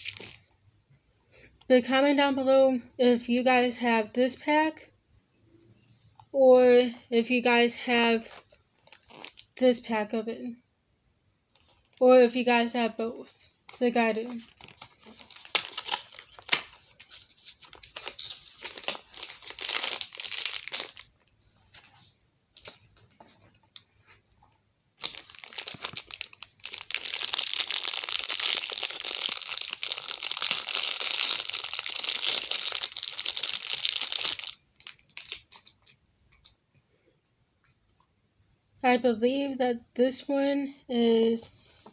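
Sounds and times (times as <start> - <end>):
plastic wrapping crinkling and tearing: 0.0 - 0.4, 8.2 - 9.6, 13.7 - 21.9, 25.0 - 36.0.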